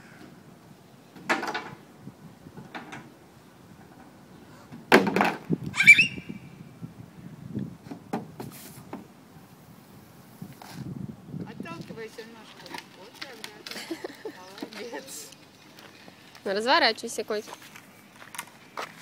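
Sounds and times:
child squealing: 5.7 - 6.4.

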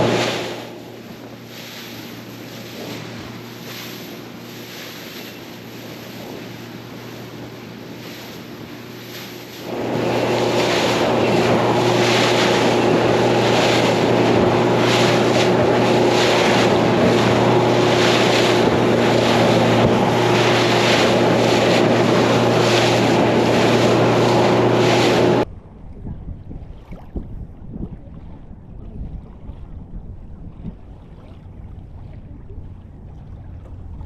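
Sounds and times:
spray and wind noise: 0.0 - 25.4
outboard motor running: 0.0 - 34.0.

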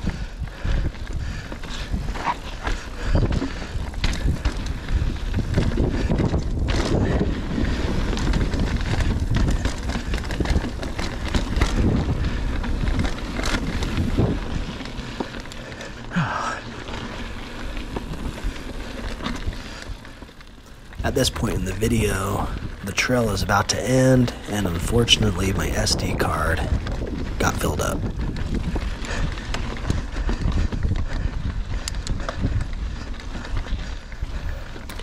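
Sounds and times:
bike knocking and rattling on rocks: 0.0 - 23.1, 25.7 - 35.0
tyre rumble on dirt trail: 0.0 - 35.0
wind buffeting microphone: 0.0 - 35.0.

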